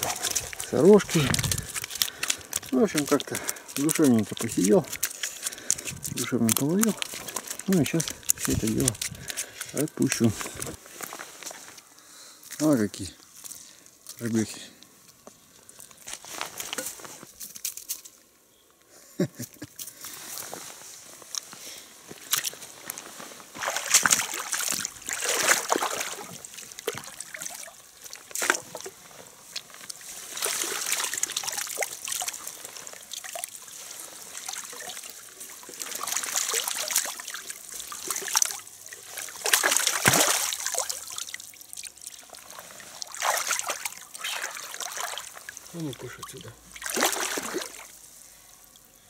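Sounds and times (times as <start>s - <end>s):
water trickling and dripping: 0.0s - 10.8s, 22.2s - 48.0s
water splashing and sloshing: 0.0s - 12.7s, 20.1s - 48.2s.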